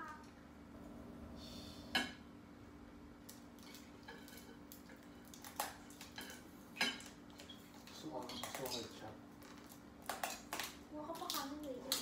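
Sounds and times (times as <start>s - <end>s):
steady low hum: 0.0s - 11.9s
cutlery clinking on plates: 6.0s - 7.2s.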